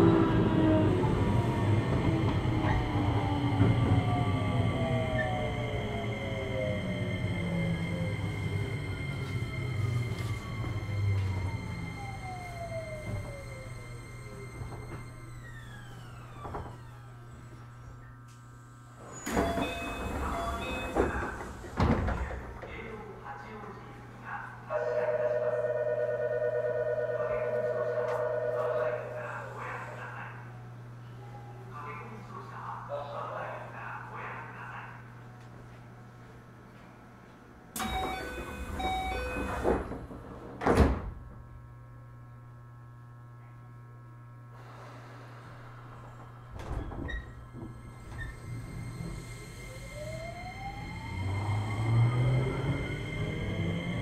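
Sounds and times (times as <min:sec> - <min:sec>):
train doors opening noise: 0:00.4 - 0:18.2, 0:19.0 - 0:22.9, 0:37.7 - 0:41.4, 0:44.6 - 0:54.0
doors closing with heavy thud: 0:19.2 - 0:22.7, 0:37.8 - 0:41.4, 0:45.2 - 0:48.8
low electrical hum: 0:40.2 - 0:48.0.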